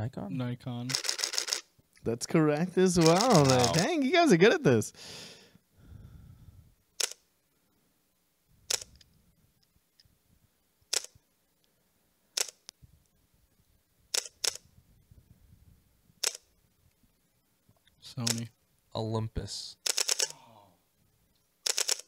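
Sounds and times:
camera shutter clicks: 0.9s - 1.7s, 3.0s - 3.9s, 7.0s - 7.2s, 8.7s - 9.1s, 10.9s - 11.2s, 12.4s - 12.7s, 14.1s - 14.6s, 16.2s - 16.5s, 18.2s - 18.4s, 19.8s - 20.3s, 21.6s - 22.0s.

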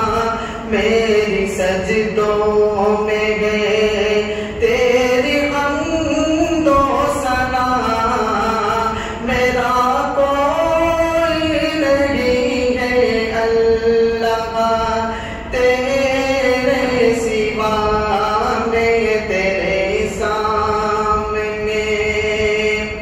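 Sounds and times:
man chanting into a microphone: 0.0s - 23.0s.

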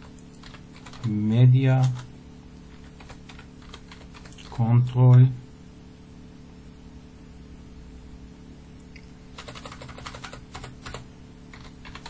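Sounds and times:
computer keyboard clicks: 0.0s - 1.1s, 2.7s - 4.5s, 9.4s - 12.0s
low electrical hum: 0.0s - 12.0s.

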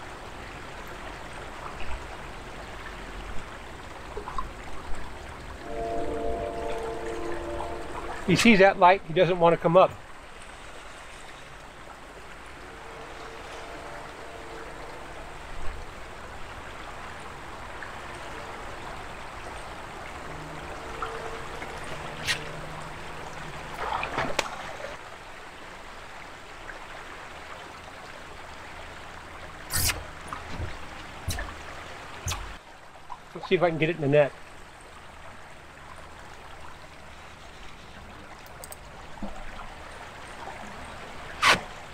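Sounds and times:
river current rushing: 5.4s - 25.0s.

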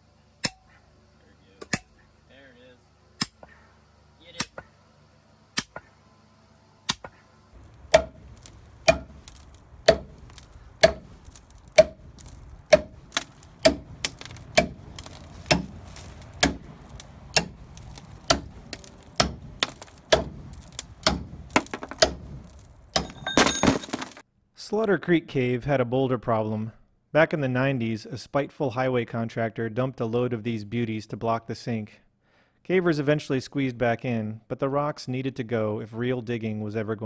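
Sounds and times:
sledgehammer striking steel pins: 6.9s - 24.2s.

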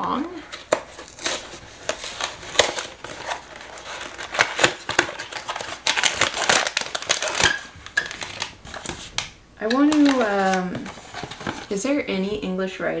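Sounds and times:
plastic bag crinkling: 0.4s - 11.8s
cardboard box tearing: 0.7s - 9.2s.

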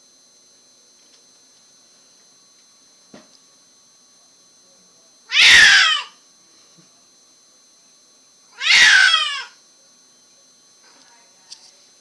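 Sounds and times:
cat meowing loudly: 5.3s - 6.2s, 8.6s - 9.6s.

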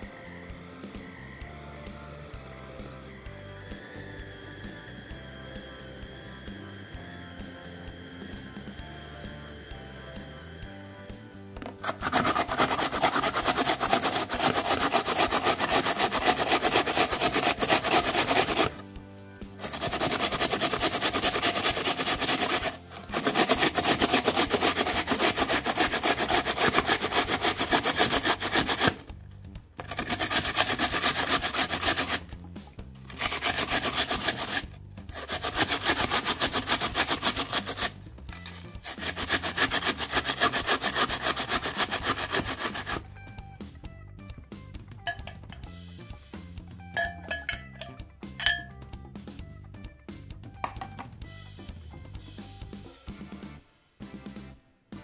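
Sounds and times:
onion grated on metal grater: 11.6s - 18.8s, 19.6s - 29.1s, 29.8s - 32.4s, 33.0s - 43.1s.

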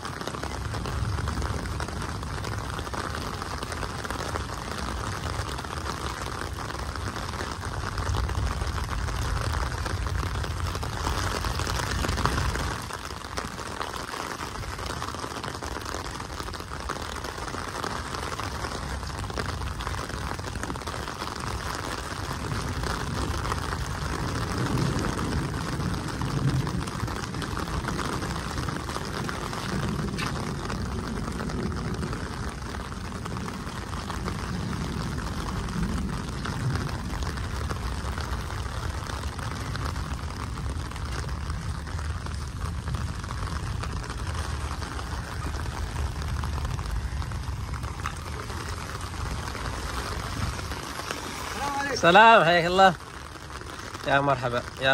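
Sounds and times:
rain on wet pavement: 0.0s - 54.9s
low rumble: 22.2s - 52.2s.

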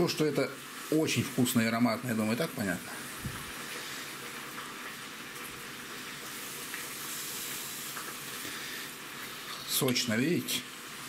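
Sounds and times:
potatoes sizzling in oil: 0.0s - 11.0s.

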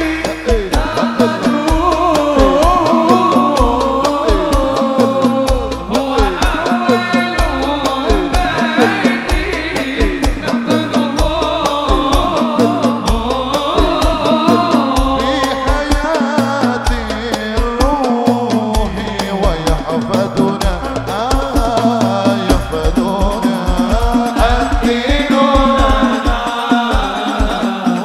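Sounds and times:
frame drums and bass drum: 0.0s - 28.0s
ornamented melody: 0.8s - 15.8s.

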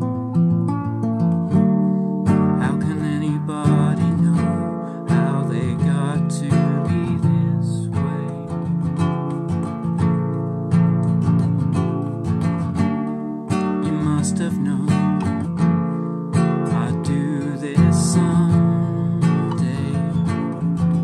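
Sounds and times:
acoustic guitar chords: 0.0s - 21.0s
man singing: 2.4s - 9.0s, 13.6s - 15.8s, 16.4s - 21.0s.

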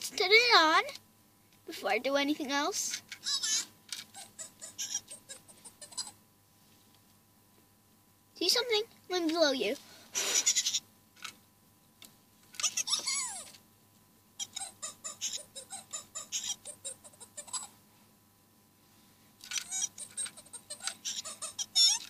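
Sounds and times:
toy electronic squeaky chirps: 3.2s - 5.3s, 12.6s - 13.5s, 14.4s - 17.7s, 19.5s - 22.0s.

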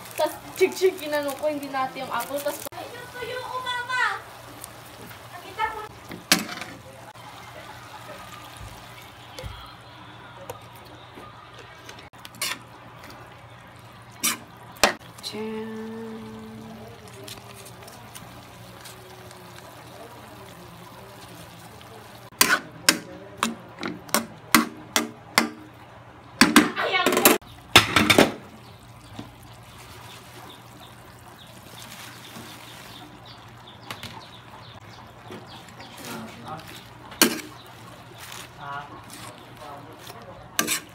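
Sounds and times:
food sizzling in a wok: 0.0s - 9.2s, 14.2s - 22.6s
low hiss of frying: 0.0s - 11.5s, 12.1s - 40.9s
spatula scraping a pan: 12.3s - 12.7s, 14.2s - 15.0s, 35.8s - 40.9s.

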